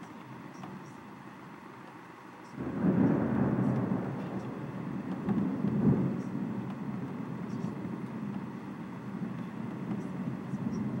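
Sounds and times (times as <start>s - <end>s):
distant thunder rumble: 2.6s - 11.0s
faint ticks: 3.7s - 8.7s.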